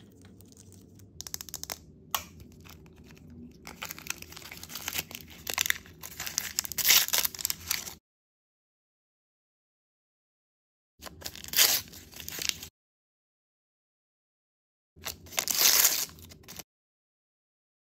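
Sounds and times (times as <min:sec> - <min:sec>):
plastic wrapper crinkling and tearing: 0:00.0 - 0:08.0, 0:11.0 - 0:12.7, 0:15.0 - 0:16.6.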